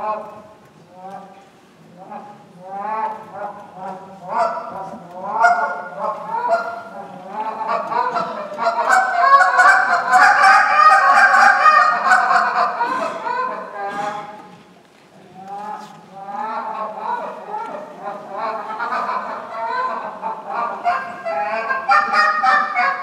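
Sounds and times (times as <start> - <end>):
goose call honks and clucks: 2.0 - 14.3, 15.5 - 23.0.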